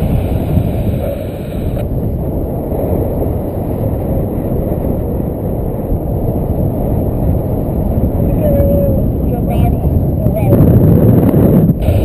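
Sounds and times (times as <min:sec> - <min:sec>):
wind noise on microphone: 0:00.0 - 0:12.0.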